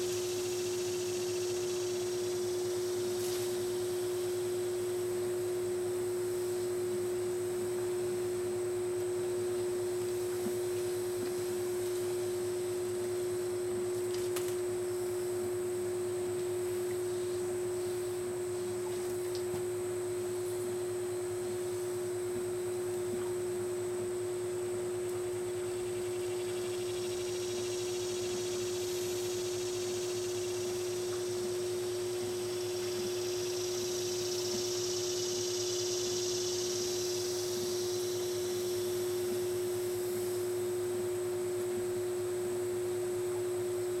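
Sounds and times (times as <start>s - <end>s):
faint low hum: 0.0s - 44.0s
steady humming tone: 0.0s - 44.0s
faint high hiss: 26.8s - 40.8s.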